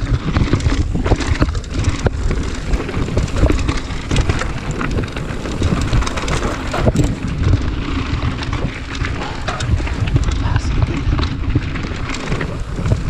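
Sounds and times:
bike rattling: 0.0 - 13.0
tyres crunching over stones: 0.0 - 13.0
wind rumble on microphone: 0.0 - 13.0.

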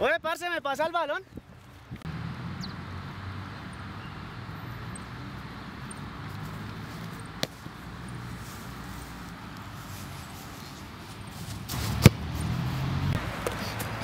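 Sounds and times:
football kicked on grass: 6.3 - 12.5.

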